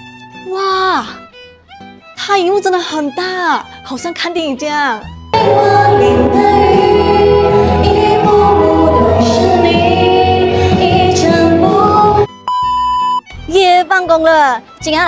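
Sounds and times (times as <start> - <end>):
loud karaoke backing track: 5.4 - 12.3
women singing into microphones: 5.4 - 12.3.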